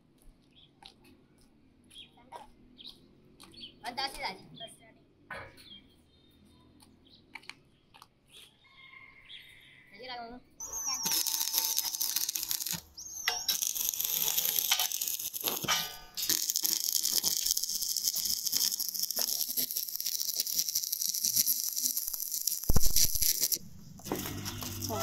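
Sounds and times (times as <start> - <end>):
arc welding crackle: 10.6 - 25.0.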